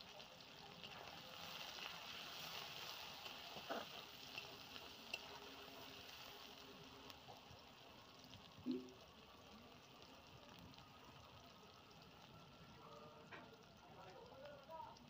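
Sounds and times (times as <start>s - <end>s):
onions sizzling in hot oil: 0.0s - 15.0s
spatula scraping the pan: 1.0s - 6.4s.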